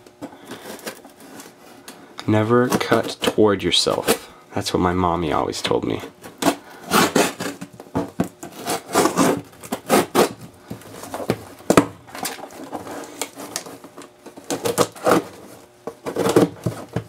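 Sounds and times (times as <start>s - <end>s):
scissors slicing packing tape: 6.4s - 7.6s, 8.4s - 10.4s.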